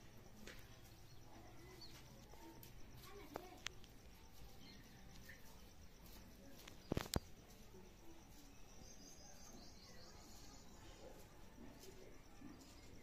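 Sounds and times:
faint high-pitched chirping: 0:00.0 - 0:13.0.

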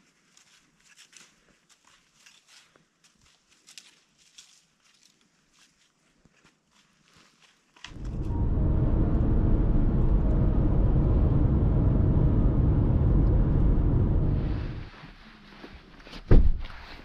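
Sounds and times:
car driving on highway: 0:07.9 - 0:14.9.

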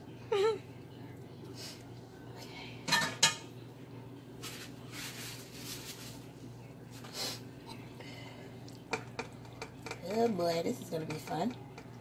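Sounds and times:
steady low hum: 0:00.0 - 0:12.0
soft rustling: 0:04.4 - 0:07.2.

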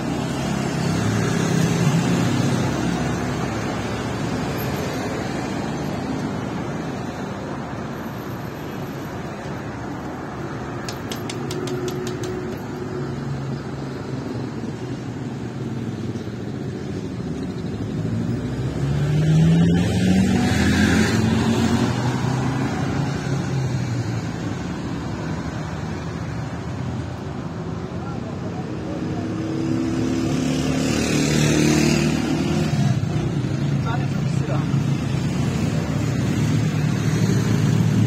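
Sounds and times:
city street traffic: 0:00.0 - 0:38.0
vehicle accelerating past: 0:18.1 - 0:23.5.

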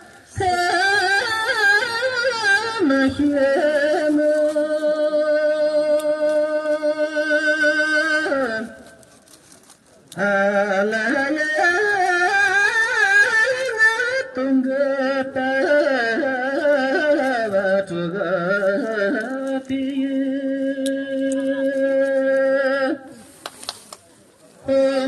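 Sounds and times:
person singing into a microphone: 0:00.0 - 0:09.0, 0:10.1 - 0:23.4, 0:24.6 - 0:25.0.

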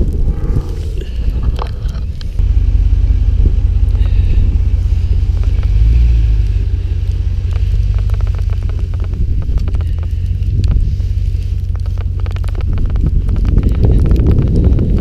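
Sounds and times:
truck driving rumble: 0:00.0 - 0:15.0
light ticks: 0:03.8 - 0:15.0.

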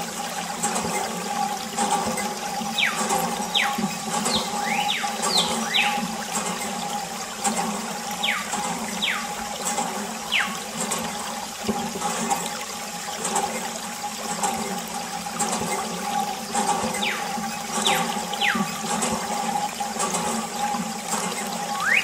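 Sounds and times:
water stream splashing: 0:00.0 - 0:22.0
high whistle sliding downward: 0:21.8 - 0:22.0.

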